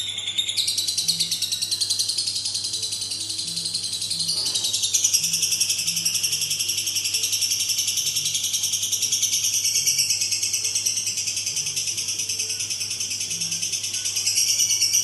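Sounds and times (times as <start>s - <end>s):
lovebird chattering trill: 0.0s - 15.0s.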